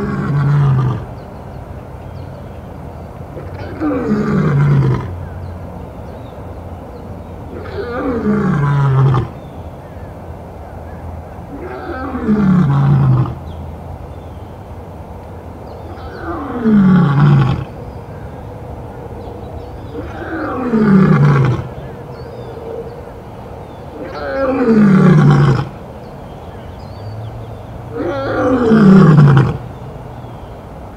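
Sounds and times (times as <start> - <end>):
lion roaring: 0.0 - 1.1, 3.4 - 5.1, 7.6 - 9.3, 11.6 - 13.4, 16.0 - 17.7, 19.9 - 21.7, 23.9 - 25.7, 28.0 - 29.6.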